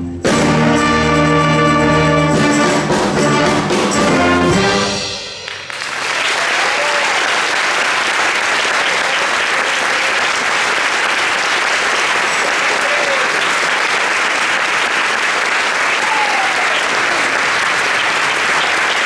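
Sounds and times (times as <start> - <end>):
audience applauding: 5.5 - 19.0.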